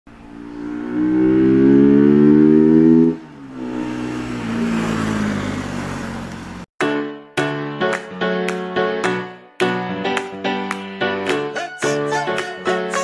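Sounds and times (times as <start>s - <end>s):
motorcycle engine accelerating: 0.1s - 6.7s.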